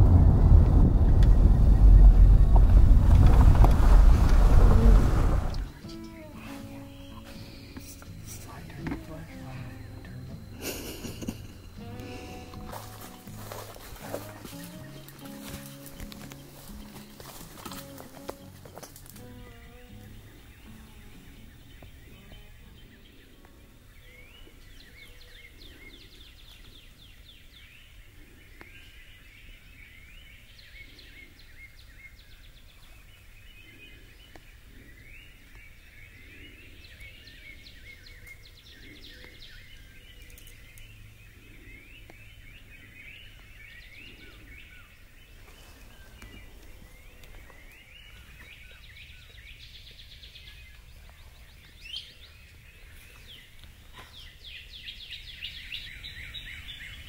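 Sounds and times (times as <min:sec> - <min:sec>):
faint low rumble: 0:00.0 - 0:05.9
songbirds chirping and singing: 0:00.8 - 0:57.0.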